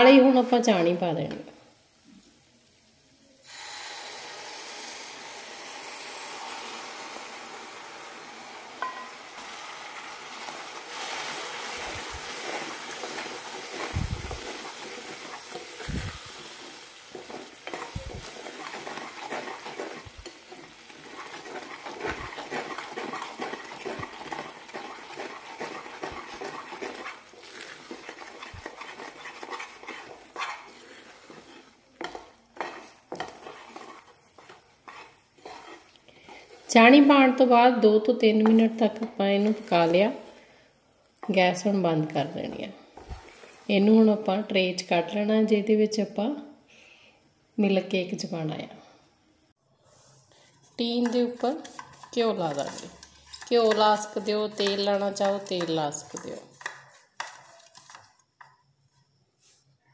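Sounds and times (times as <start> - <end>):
syrup sizzling in a pan: 1.7 - 44.1, 49.5 - 59.6
wooden spatula scraping a pan: 8.8 - 40.5, 41.2 - 44.0, 49.8 - 59.8.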